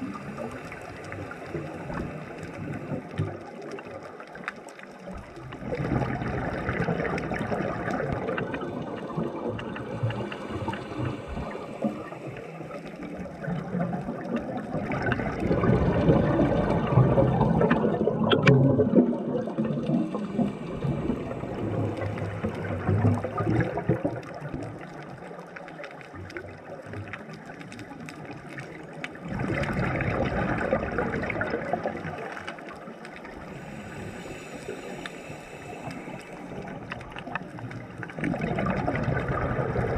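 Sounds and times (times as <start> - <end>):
scuba inhalation: 0.0 - 3.1, 9.8 - 13.8, 19.7 - 23.9, 33.3 - 39.9
exhaled bubbles gurgling underwater: 0.0 - 39.9.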